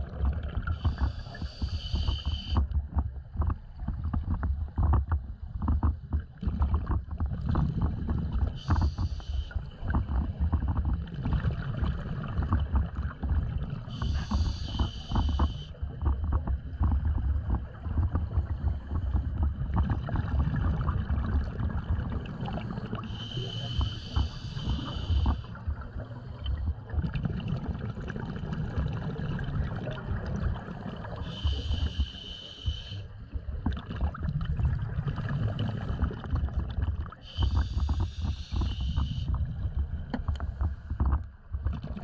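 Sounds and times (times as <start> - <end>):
exhaled bubbles rumbling: 0.0 - 42.0
scuba regulator inhalation hiss: 0.8 - 2.6, 8.6 - 9.6, 13.9 - 15.7, 23.1 - 25.5, 31.2 - 33.0, 37.3 - 39.3.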